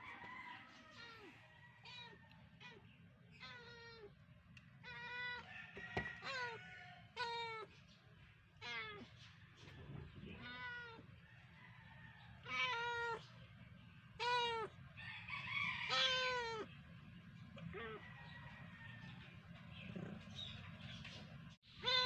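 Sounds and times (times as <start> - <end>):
cats meowing: 0.8 - 7.9, 8.6 - 11.2, 12.4 - 13.5, 14.2 - 16.7, 17.6 - 18.1, 21.6 - 22.0.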